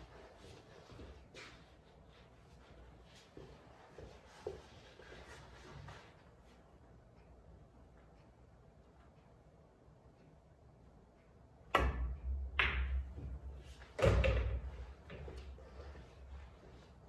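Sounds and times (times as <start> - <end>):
pool balls clicking: 11.7 - 16.4
cue striking ball: 11.8 - 13.2.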